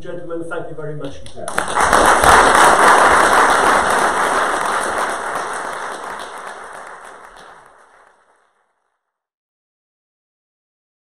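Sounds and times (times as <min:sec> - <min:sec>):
audience applauding: 0:01.5 - 0:08.6.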